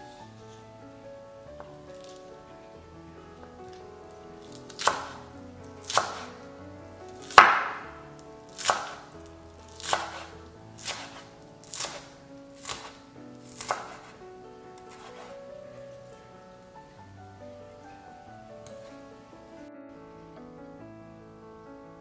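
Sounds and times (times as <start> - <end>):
knife chopping on wooden board: 4.6 - 5.2, 5.8 - 6.4, 7.2 - 7.8, 8.5 - 9.1, 9.7 - 14.2, 14.8 - 15.3.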